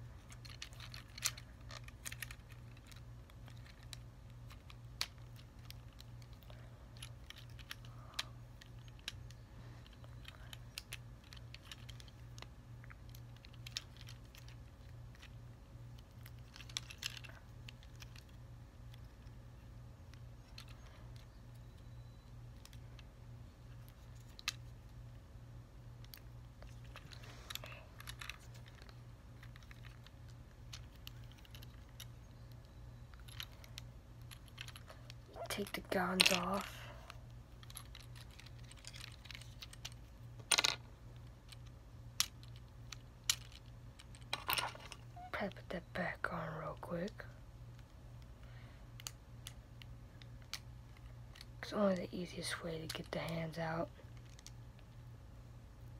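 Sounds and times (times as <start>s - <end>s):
steady low hum: 0.0s - 55.9s
plastic toy parts clicking: 0.2s - 19.4s, 37.5s - 45.1s.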